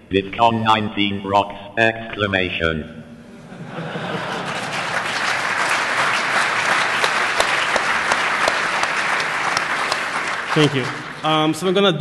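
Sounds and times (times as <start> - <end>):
audience applauding: 4.0 - 11.8
single sharp claps: 5.2 - 11.1.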